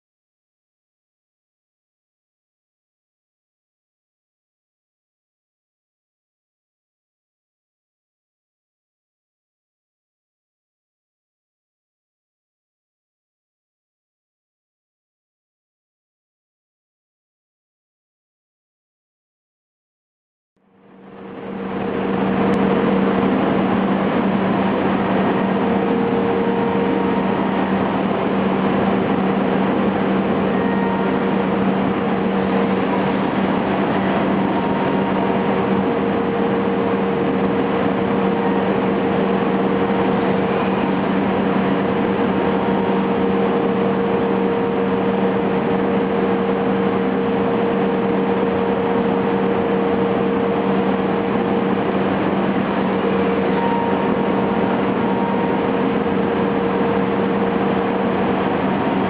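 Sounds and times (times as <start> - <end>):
machine cutting wood: 21.8 - 45.2, 52.6 - 56.2.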